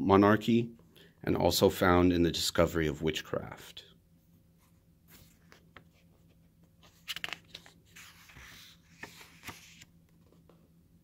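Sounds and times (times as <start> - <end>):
book page turning: 5.1 - 10.6
paper crinkle: 6.8 - 9.9.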